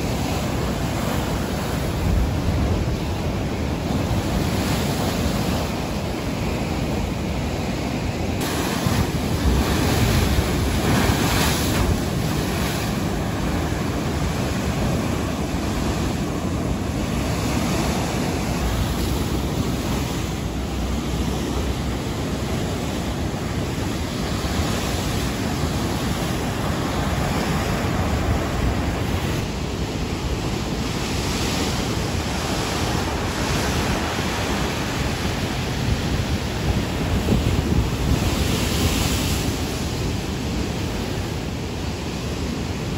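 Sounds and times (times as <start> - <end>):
surf crashing against seawall: 0.0 - 42.9
wind buffeting microphone: 0.0 - 42.9.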